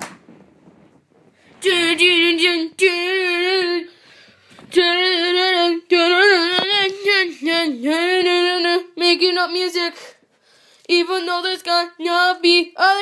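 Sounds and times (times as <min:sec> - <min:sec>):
person singing wordless tune: 0:04.7 - 0:10.2.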